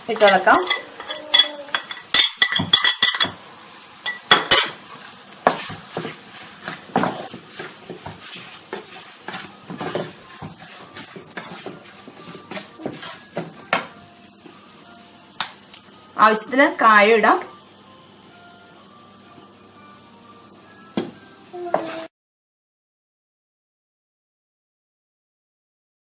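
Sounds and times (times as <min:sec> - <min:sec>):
utensils clinking on plate and pan: 0:00.0 - 0:03.4, 0:04.0 - 0:13.9
oil sizzling: 0:00.0 - 0:22.1
spatula scraping a pan: 0:04.1 - 0:13.6.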